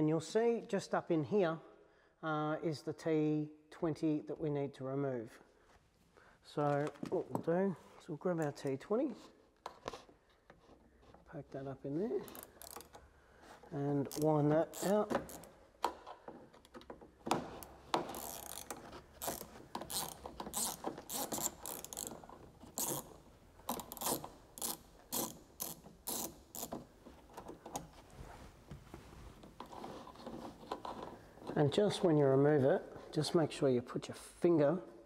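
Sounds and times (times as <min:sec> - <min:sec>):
hand ratchet clicking: 0:12.3 - 0:13.0, 0:14.0 - 0:15.5, 0:17.6 - 0:26.9.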